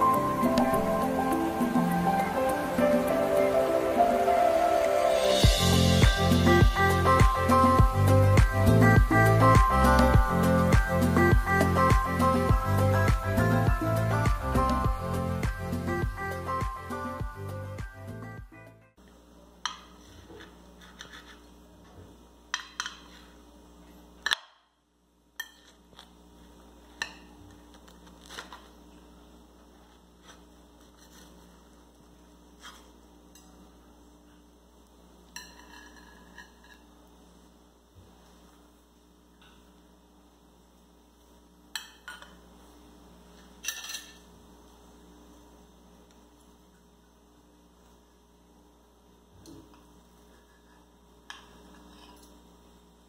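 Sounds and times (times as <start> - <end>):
steady low hum: 0.0 - 53.0
cutlery clinking on dishes: 35.3 - 36.9, 43.6 - 44.3.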